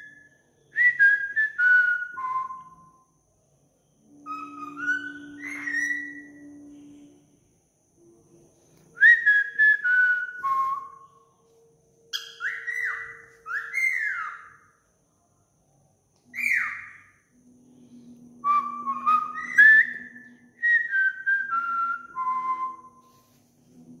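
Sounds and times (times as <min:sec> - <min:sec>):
cockatiel whistling: 0:04.2 - 0:06.7, 0:12.1 - 0:14.6, 0:16.3 - 0:17.1, 0:18.4 - 0:23.0.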